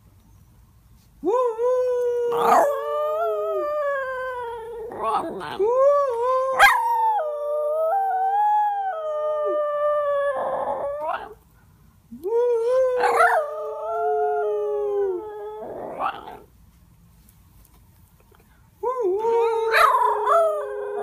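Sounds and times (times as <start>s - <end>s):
dog howling: 2.1s - 11.4s, 12.7s - 16.5s, 19.2s - 21.0s
dog yelping: 2.3s - 2.7s, 6.6s - 6.9s, 13.0s - 13.4s.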